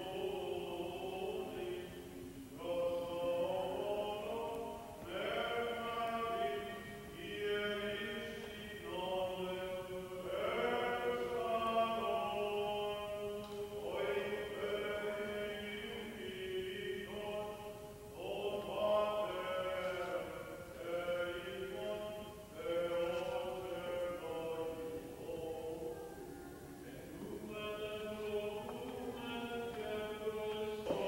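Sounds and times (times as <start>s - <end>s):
sung chant phrases: 0.0s - 31.0s.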